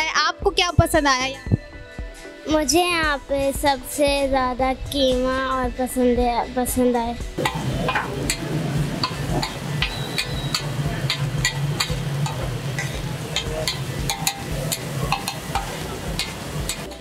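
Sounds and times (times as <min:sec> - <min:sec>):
steady low hum: 0:07.3 - 0:17.0.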